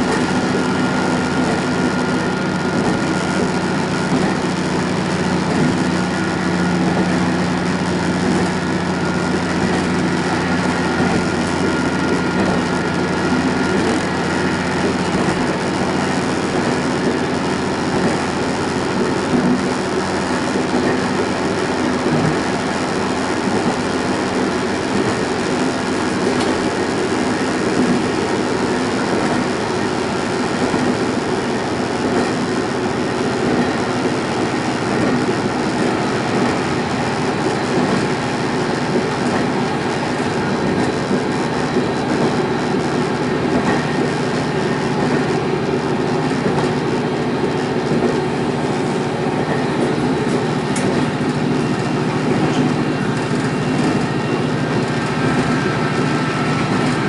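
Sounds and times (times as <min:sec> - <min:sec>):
diesel engine drone: 0:00.0 - 0:57.0
wheels rumbling on rails: 0:00.0 - 0:57.0.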